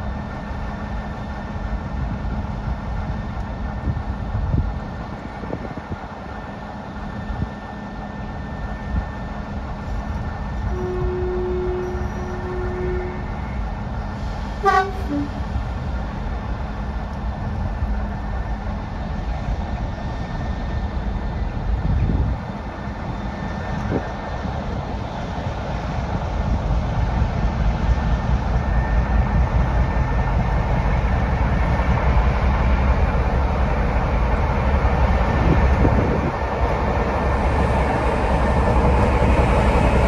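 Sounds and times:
diesel locomotive droning: 0.0 - 40.0
two-tone horn toot: 10.7 - 13.3.

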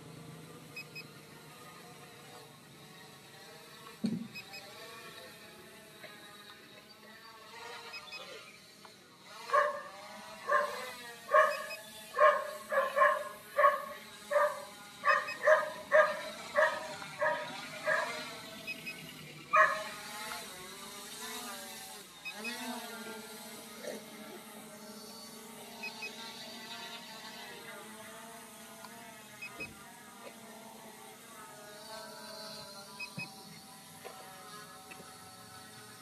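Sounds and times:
dog barking: 9.5 - 18.2, 19.5 - 19.9.

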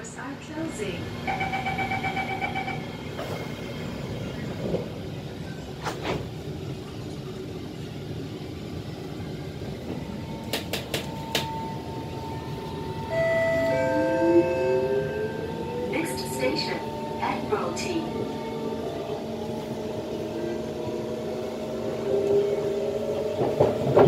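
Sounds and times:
train car rumble: 0.0 - 24.0
train doors shutting: 0.4 - 7.2, 9.2 - 24.0.

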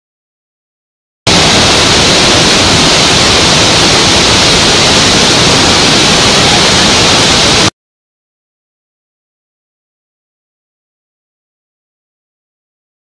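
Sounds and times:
water rushing over waterfall: 1.3 - 7.7.

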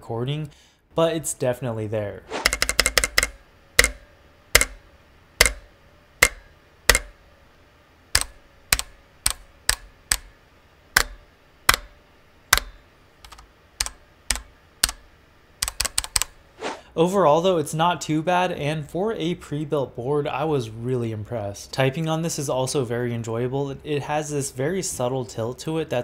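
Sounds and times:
mechanical keyboard keys struck: 2.4 - 4.0, 4.6 - 4.8, 5.4 - 7.2, 8.2 - 10.3, 11.0 - 15.0, 15.6 - 16.3.

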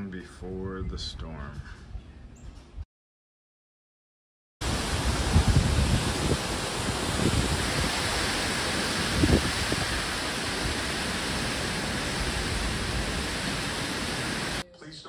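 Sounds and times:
strong wind blowing: 4.6 - 14.6
wind gusts buffeting microphone: 4.6 - 14.6.

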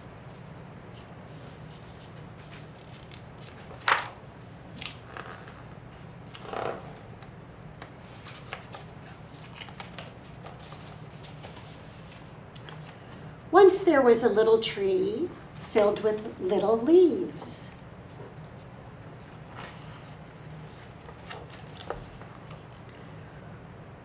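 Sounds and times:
steady low hum: 0.0 - 24.0
book pages turning: 0.2 - 13.3, 18.0 - 22.9
sharp page flip: 0.9 - 5.6, 8.0 - 13.0.

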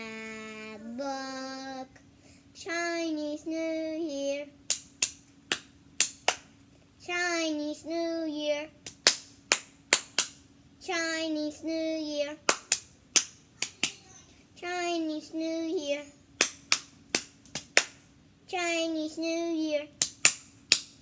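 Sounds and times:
child singing a chanted phrase: 0.0 - 1.9, 2.6 - 4.5, 10.8 - 12.4, 13.6 - 16.1, 18.5 - 20.0
hand claps: 4.7 - 6.5, 8.8 - 10.4, 12.5 - 14.0, 16.4 - 18.0, 20.0 - 21.0.

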